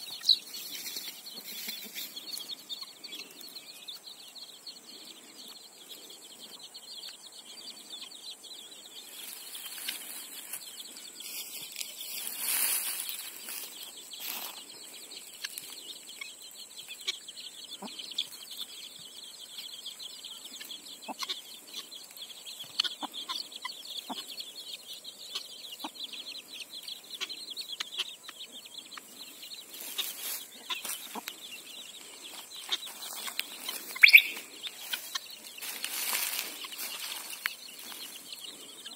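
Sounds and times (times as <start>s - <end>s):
chicks peeping: 0.0s - 38.9s
hen clucking: 15.4s - 18.4s, 20.5s - 22.0s, 22.6s - 24.4s, 25.3s - 38.9s.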